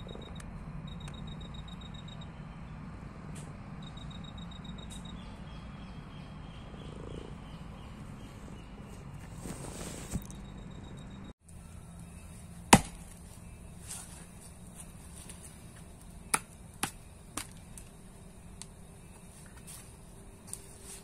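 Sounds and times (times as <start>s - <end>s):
steady low hum: 0.0s - 21.0s
axe chopping a log: 12.7s - 13.2s, 16.3s - 17.6s.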